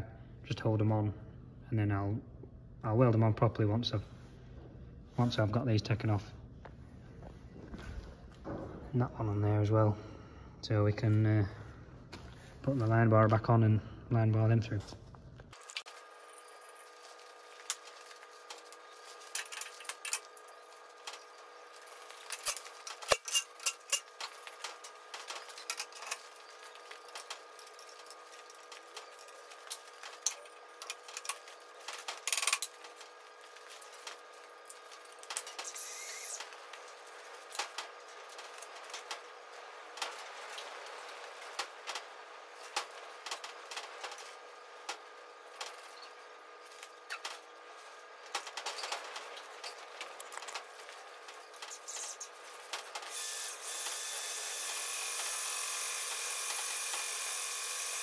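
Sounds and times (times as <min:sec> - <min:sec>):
machine hum: 0:00.0 - 0:58.0
metal parts and tools clinking: 0:15.6 - 0:39.4.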